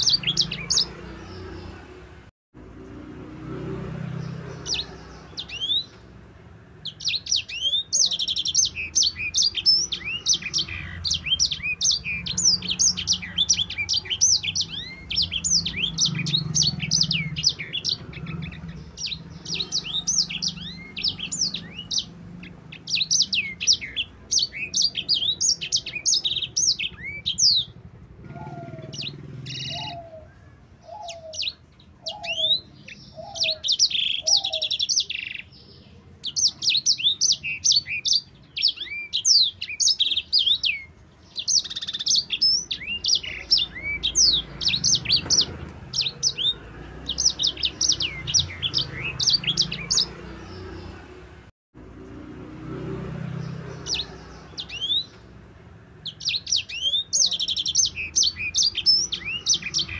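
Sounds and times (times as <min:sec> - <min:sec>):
bird singing chirps and trills: 0:00.0 - 0:02.2, 0:03.0 - 0:59.9
lower bird call: 0:06.9 - 0:35.5.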